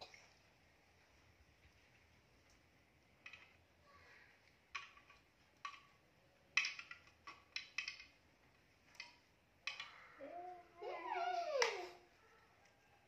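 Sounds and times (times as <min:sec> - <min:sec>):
plastic toys clacking: 0:03.2 - 0:03.7, 0:04.4 - 0:10.4.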